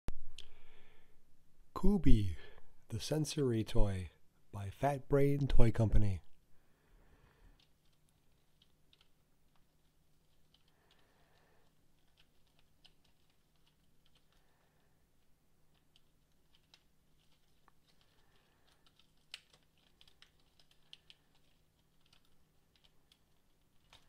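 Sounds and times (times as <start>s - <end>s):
soft rustles: 7.2s - 24.0s.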